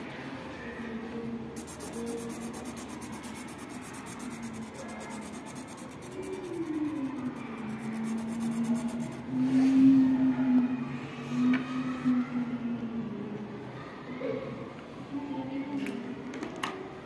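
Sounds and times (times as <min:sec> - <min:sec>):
marker scratching on paper: 0:01.6 - 0:09.3.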